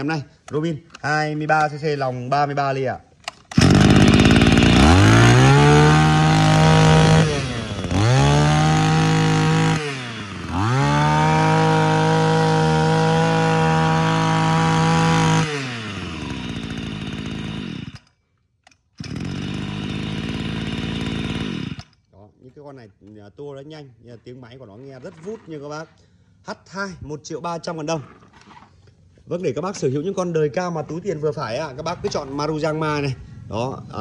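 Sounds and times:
brush cutter engine revving: 0:03.3 - 0:18.1, 0:19.0 - 0:22.0.

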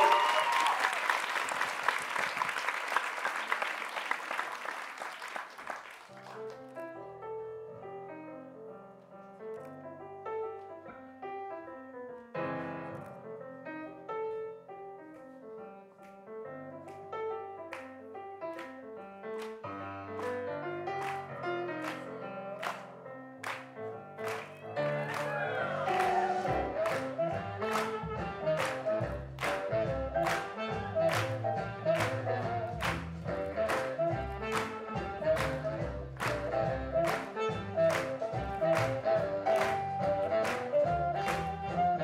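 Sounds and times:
audience applause: 0:00.0 - 0:06.7, 0:20.2 - 0:29.6, 0:30.2 - 0:41.4
swing piano playing chords: 0:06.1 - 0:42.0.

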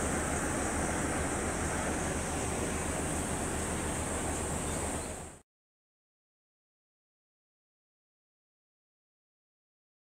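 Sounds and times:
outdoor ambient hiss: 0:00.0 - 0:05.4.

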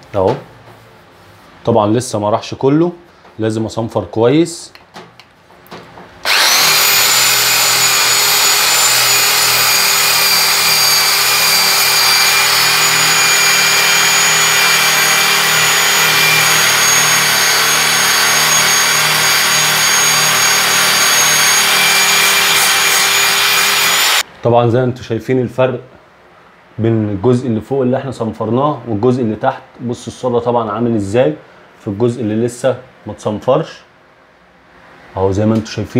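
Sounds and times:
electric drill motor whine: 0:06.2 - 0:24.2.

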